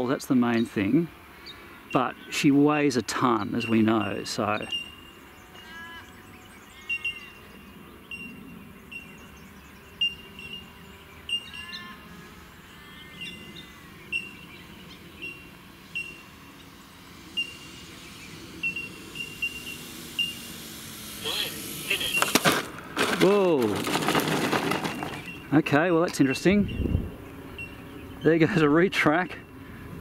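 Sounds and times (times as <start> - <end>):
birds chirping: 0.0 - 30.0
birds sliding calls: 12.7 - 26.6.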